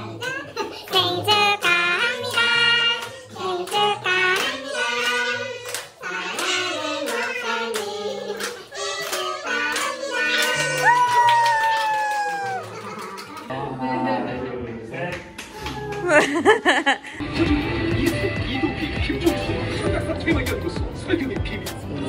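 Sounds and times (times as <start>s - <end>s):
group of people singing: 0.8s - 10.9s
people clapping in time: 1.6s - 13.5s, 14.6s - 16.4s.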